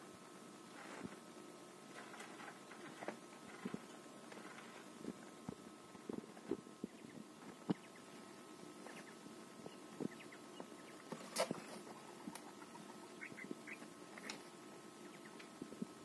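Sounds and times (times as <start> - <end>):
quails pecking and scratching: 0.6 - 16.0
soft quail calls: 8.8 - 14.3, 15.0 - 15.5.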